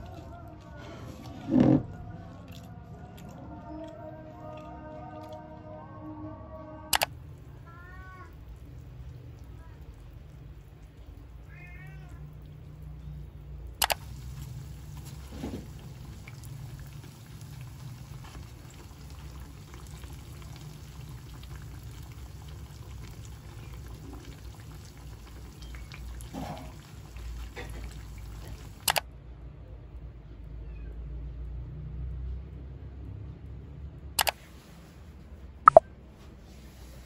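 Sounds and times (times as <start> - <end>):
hot oil sizzling: 14.0 - 28.8.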